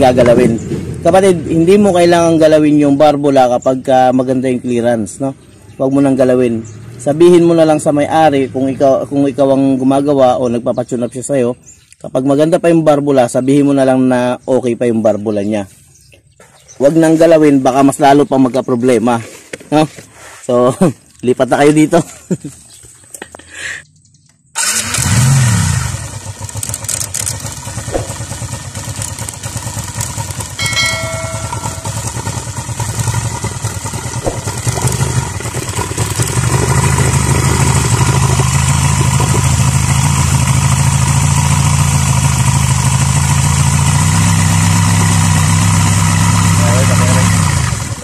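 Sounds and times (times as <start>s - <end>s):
motorcycle engine starting and running: 0.0s - 10.9s, 21.7s - 48.0s
short electronic chime: 30.6s - 32.4s.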